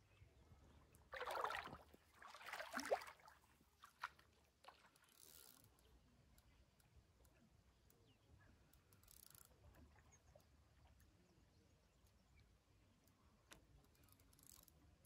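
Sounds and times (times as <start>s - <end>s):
water splashing: 1.2s - 4.1s
faint clicks: 8.6s - 11.2s.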